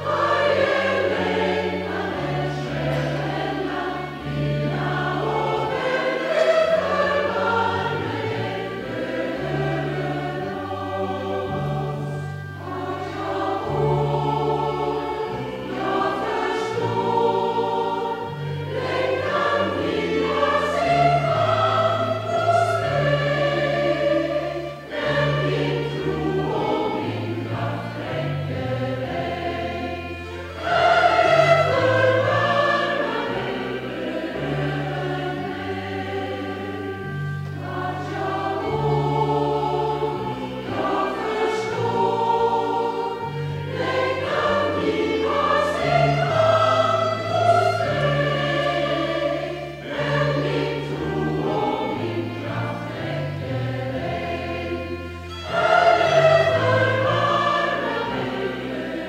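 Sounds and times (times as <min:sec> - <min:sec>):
instrumental accompaniment: 0:00.0 - 0:59.0
mixed choir singing a hymn: 0:00.0 - 0:59.0.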